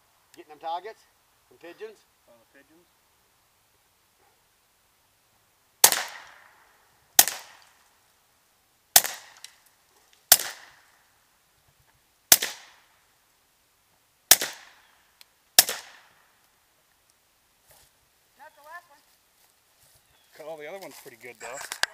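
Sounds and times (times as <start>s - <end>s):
suppressed pistol shots: 5.8s - 6.5s, 7.2s - 7.7s, 9.0s - 9.5s, 10.3s - 10.8s, 12.3s - 12.8s, 14.3s - 14.8s, 15.6s - 16.2s.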